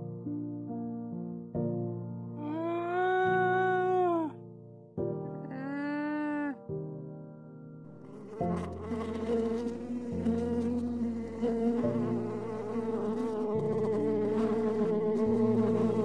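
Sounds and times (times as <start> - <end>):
flying insect buzzing: 7.9 - 16.0.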